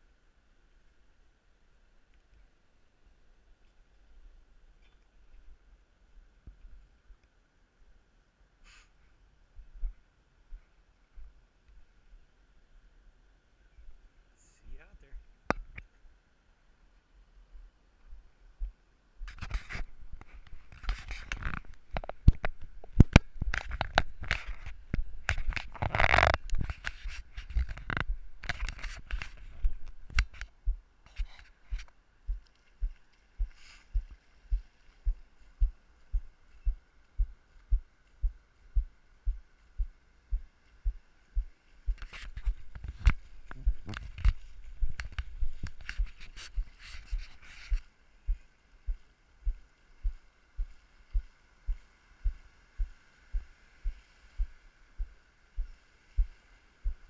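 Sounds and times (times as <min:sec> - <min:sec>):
footsteps on sand: 0:26.2 - 0:57.0.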